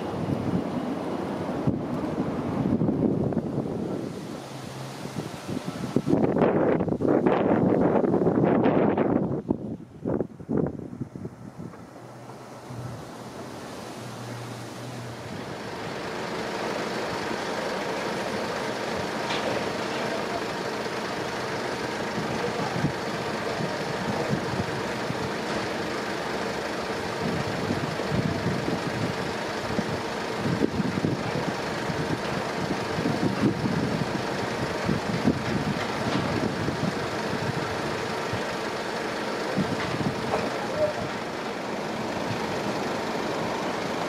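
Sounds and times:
low rumbles: 0.0 - 44.0
road traffic noise: 0.0 - 44.0.

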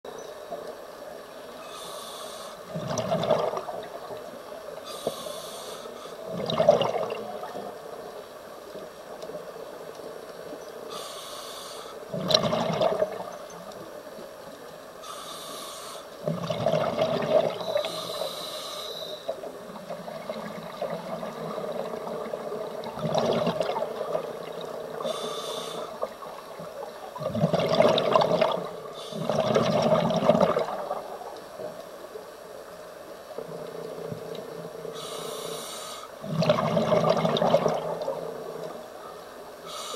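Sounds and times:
regulator inhale hiss: 1.6 - 2.7, 4.8 - 6.3, 10.9 - 12.1, 15.0 - 16.2, 17.6 - 19.5, 25.0 - 26.2, 28.8 - 29.3, 34.8 - 36.2, 39.6 - 39.9
exhaled air bubbling: 2.6 - 4.4, 6.2 - 8.0, 12.1 - 13.6, 16.2 - 18.3, 19.2 - 31.6, 36.2 - 38.9.

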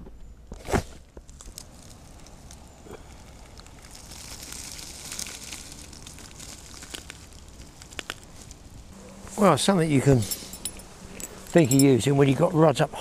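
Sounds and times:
water trickling over pebbles: 1.2 - 8.8.

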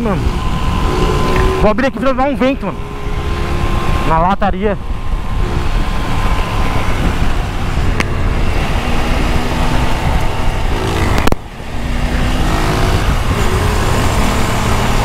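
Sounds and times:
motorcycle engine: 0.0 - 15.0
surrounding motorcycles running: 0.0 - 15.0
wind rush over microphone: 3.1 - 15.0.

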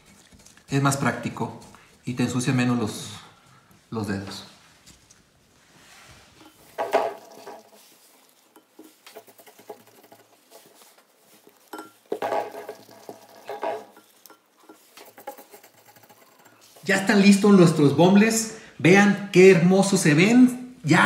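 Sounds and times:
quiet food handling: 0.0 - 2.1, 3.4 - 17.8
dishes clattering: 6.4 - 16.9
glass bowl clinking: 6.4 - 17.1.

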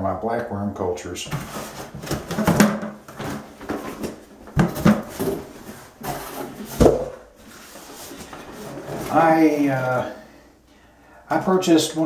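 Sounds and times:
cardboard rustling and scraping: 1.3 - 9.4.

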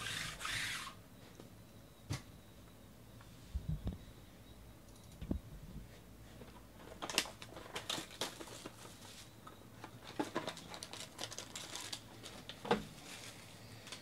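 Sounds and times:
shrink-wrap crinkling: 6.8 - 14.0.

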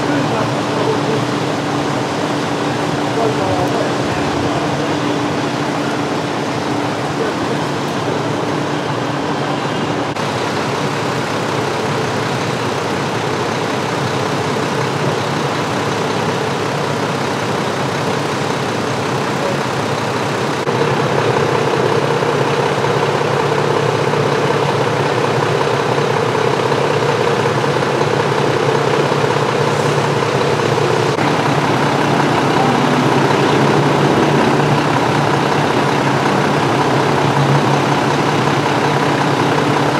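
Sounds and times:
street noise: 0.0 - 39.9
truck diesel engine running: 0.0 - 39.9.

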